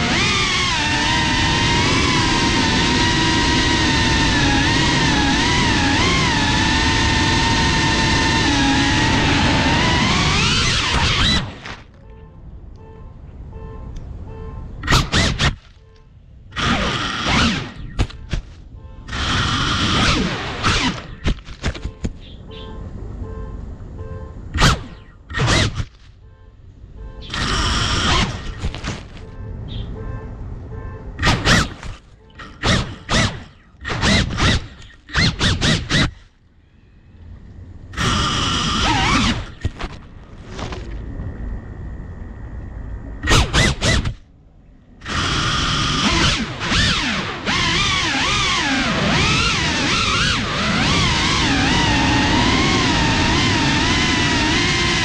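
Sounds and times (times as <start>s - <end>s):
propellers whacking leaves: 0.0s - 11.9s, 45.0s - 55.0s
drone motors revving: 0.0s - 12.0s, 14.8s - 15.8s, 16.5s - 22.2s, 24.5s - 26.0s, 27.2s - 29.2s, 31.2s - 36.4s, 37.4s - 44.3s, 45.0s - 55.0s.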